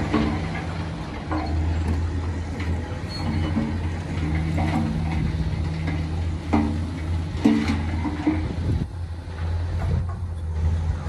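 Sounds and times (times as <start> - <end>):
short squeaks and knocks: 0.0 - 8.2
heavy diesel machinery droning: 0.0 - 11.0.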